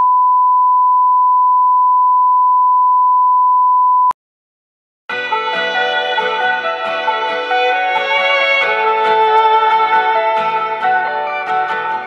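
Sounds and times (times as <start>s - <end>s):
sine-wave test tone: 0.0s - 4.1s.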